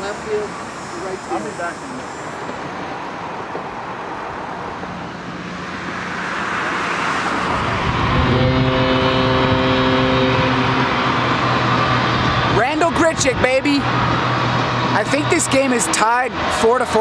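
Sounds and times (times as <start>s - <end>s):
road traffic: 0.0s - 17.0s
long horn blast: 7.6s - 12.6s.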